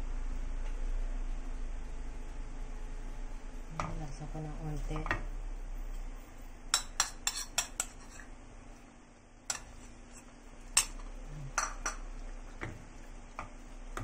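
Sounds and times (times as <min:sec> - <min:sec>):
spoon scraping against a wok: 0:06.7 - 0:08.4, 0:09.5 - 0:12.1.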